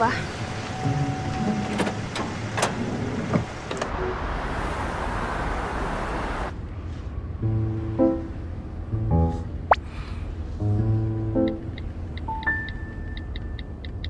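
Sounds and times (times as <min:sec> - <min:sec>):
road traffic noise: 0:00.0 - 0:14.0
music: 0:07.4 - 0:09.5, 0:10.6 - 0:13.3.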